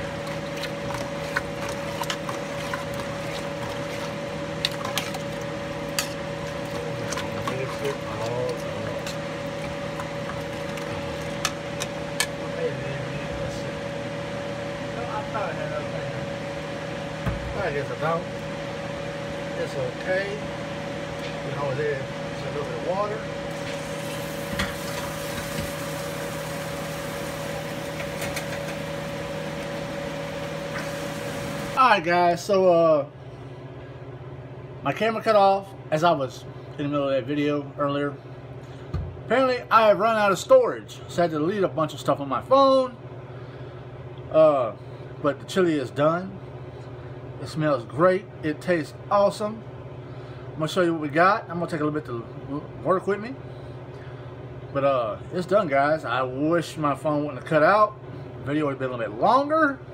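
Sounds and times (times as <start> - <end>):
thick chili squelching: 0.0 - 11.5
steady hum: 0.0 - 59.9.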